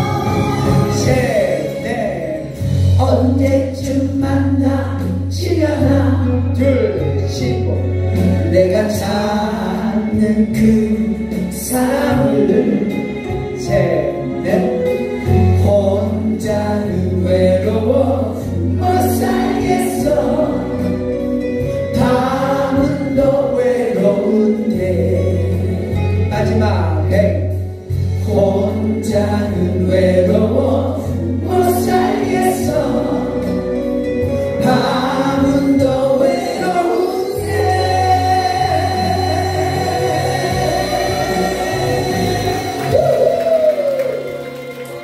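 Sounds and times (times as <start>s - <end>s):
group of voices singing: 0.0s - 6.2s, 14.4s - 26.5s, 28.2s - 45.0s
backing track with bass line: 0.0s - 45.0s.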